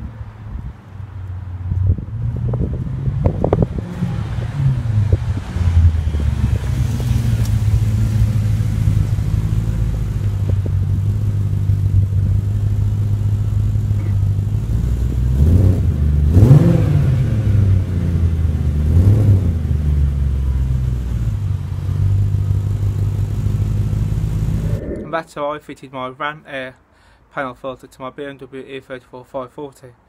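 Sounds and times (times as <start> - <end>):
car engine idling: 6.1 - 15.3, 19.8 - 24.8
engine revving: 14.0 - 19.8, 22.9 - 25.1.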